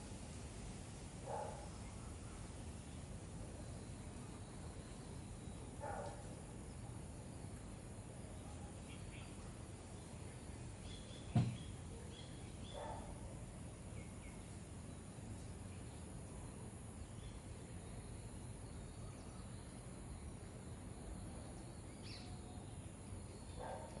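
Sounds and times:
low thump: 0:11.3 - 0:11.6
faint bird chirps: 0:15.7 - 0:24.0.

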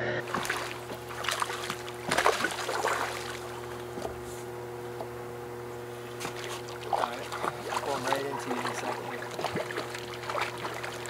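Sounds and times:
fish splashing in water: 0:00.2 - 0:04.2, 0:05.9 - 0:11.0.

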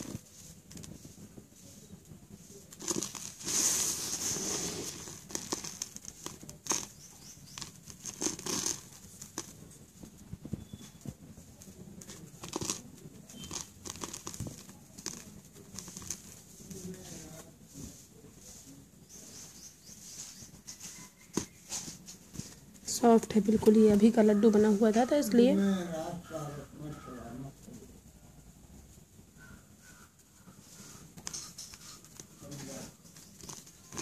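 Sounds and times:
paper rustling and crinkling: 0:00.0 - 0:18.7, 0:30.8 - 0:34.0
small gritty clicks: 0:05.0 - 0:09.6, 0:10.9 - 0:16.3.

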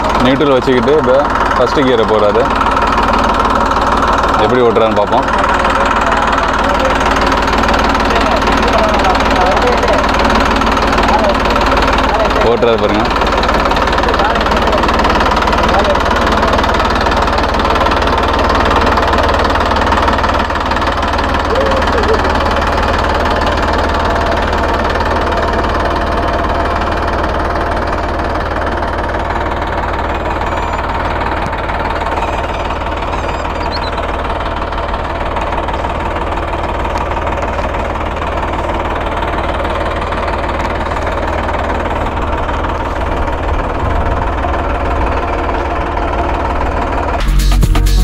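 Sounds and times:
tractor diesel engine running: 0:00.0 - 0:48.0
music: 0:47.2 - 0:48.0.

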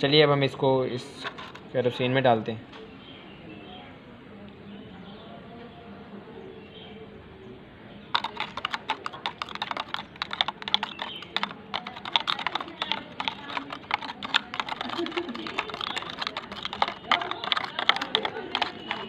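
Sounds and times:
spoon scraping plastic jar: 0:01.2 - 0:01.7, 0:08.2 - 0:19.0.

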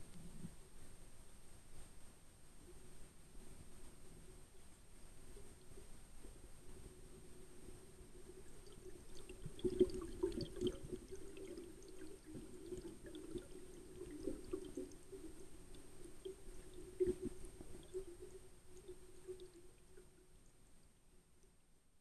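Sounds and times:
underwater bubbling and gurgling: 0:05.4 - 0:20.4.

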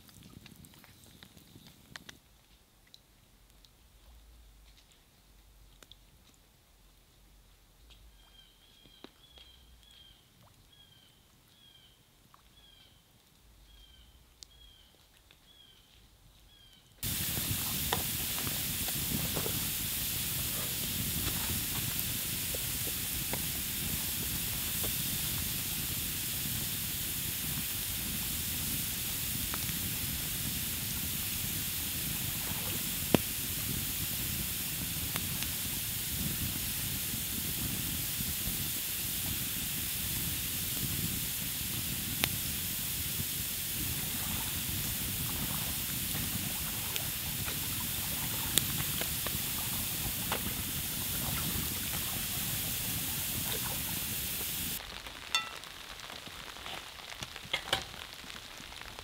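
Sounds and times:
rain falling: 0:17.0 - 0:59.0.

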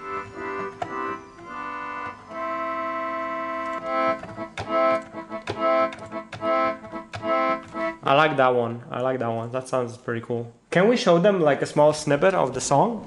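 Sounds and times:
electronic chord organ chords: 0:00.0 - 0:08.4.

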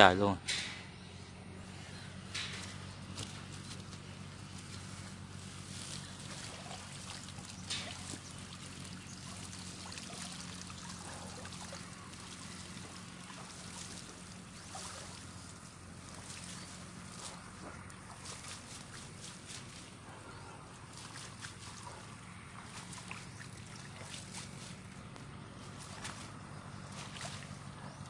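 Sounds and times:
netting knocks and rustles: 0:02.2 - 0:27.7
water trickling and dripping: 0:05.5 - 0:20.0, 0:20.7 - 0:25.0, 0:25.7 - 0:27.8.

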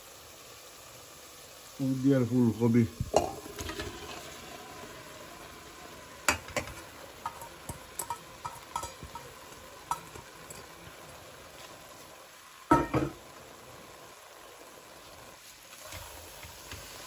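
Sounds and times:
vegetables sizzling in a pot: 0:00.0 - 0:17.0
metal utensil clinking on steel pot: 0:03.1 - 0:04.0, 0:06.3 - 0:10.8.

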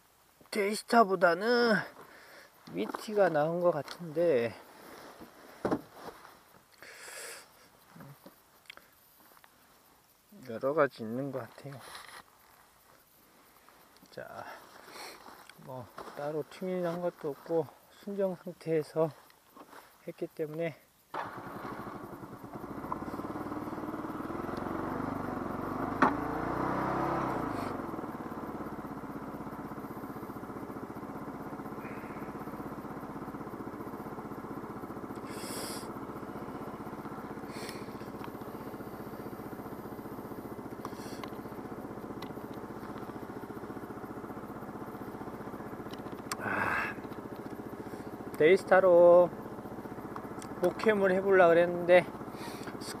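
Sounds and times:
scooter engine running: 0:21.1 - 0:53.0.

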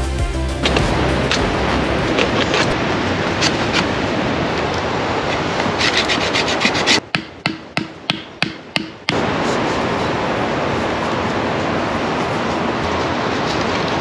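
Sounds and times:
knife whittling wood: 0:05.6 - 0:07.0
hatchet knocking stick into ground: 0:07.0 - 0:09.2.

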